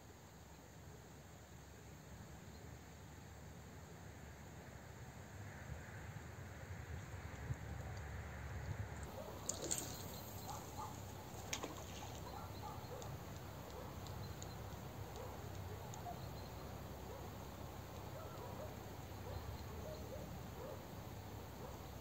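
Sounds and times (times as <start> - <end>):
wind: 0.0 - 22.0
river rumble: 9.1 - 14.0
faint bird chirps: 9.2 - 20.8.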